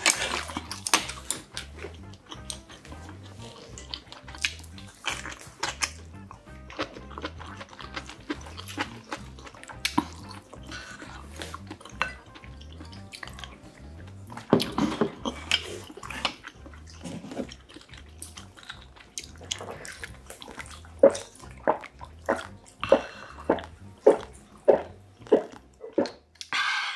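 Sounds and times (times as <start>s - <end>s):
chewing and mouth sounds: 0.0s - 26.5s
soft background music: 0.0s - 26.9s
swallowing gulps: 6.9s - 26.3s.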